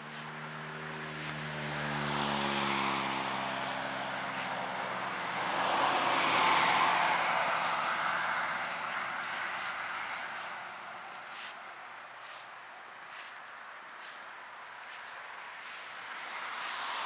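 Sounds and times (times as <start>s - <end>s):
passing motor hum: 0.1s - 11.8s.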